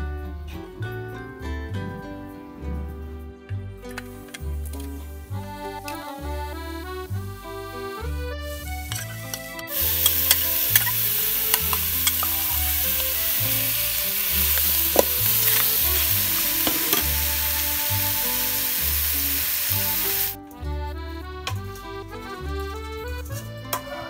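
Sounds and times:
meat sizzling in a pot: 0:08.5 - 0:09.0, 0:09.6 - 0:20.4
ladle scraping a pot: 0:14.5 - 0:17.2.

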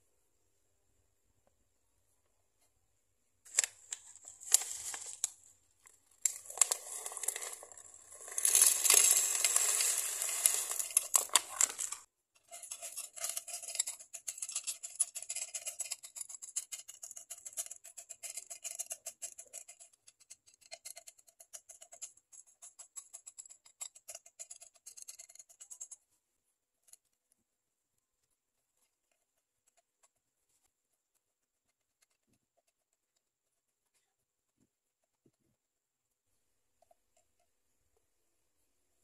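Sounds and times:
brush clicking over stones: 0:06.2 - 0:19.8
stones rattling against glass: 0:06.3 - 0:16.2.

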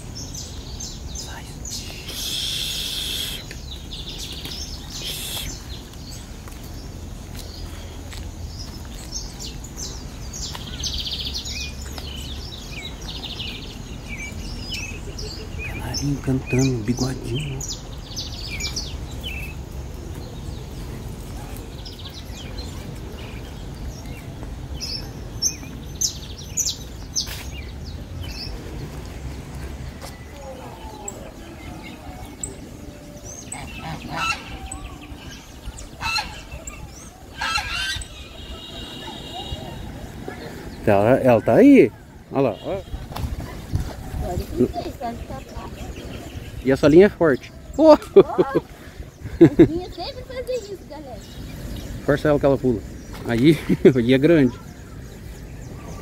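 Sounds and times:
small songbirds singing: 0:00.0 - 0:56.0
goose honking: 0:33.5 - 0:34.7, 0:36.0 - 0:36.5, 0:37.3 - 0:39.5.

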